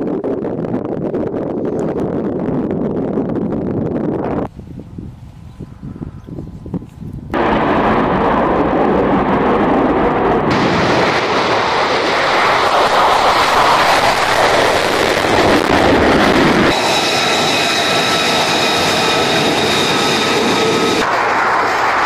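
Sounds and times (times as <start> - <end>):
high-pitched jet engine whine: 5.6 - 22.0
jet engine taking off: 7.3 - 22.0.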